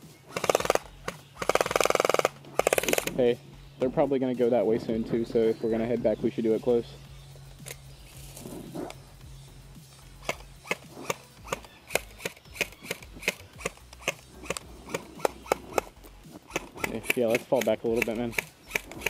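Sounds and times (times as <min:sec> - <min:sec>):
airsoft rifle shots: 0:00.3 - 0:03.2, 0:10.2 - 0:19.0.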